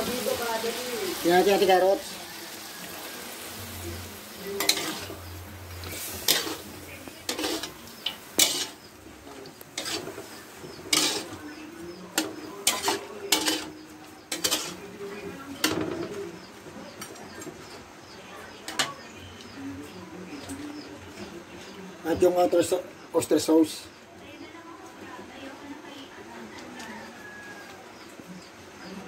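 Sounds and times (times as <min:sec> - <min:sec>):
metal spatula scraping wok: 0:00.0 - 0:16.2
food sizzling: 0:00.0 - 0:29.0.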